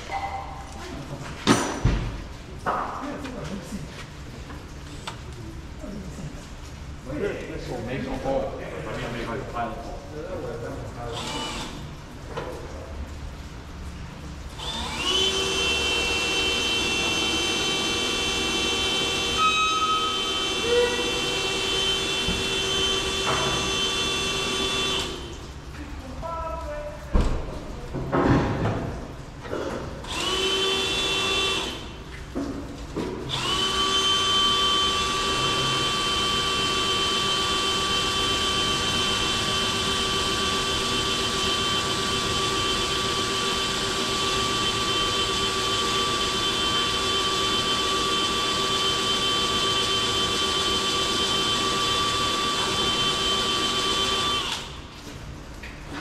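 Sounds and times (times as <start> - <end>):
power drill boring into metal: 11.2 - 11.8, 14.6 - 25.2, 30.0 - 31.8, 33.3 - 54.8.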